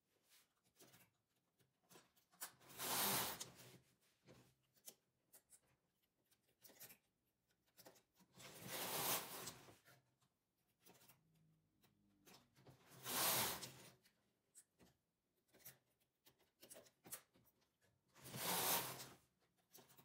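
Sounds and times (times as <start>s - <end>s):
knitting machine carriage sliding: 2.5s - 3.8s, 8.4s - 9.8s, 12.3s - 14.0s, 18.2s - 19.2s.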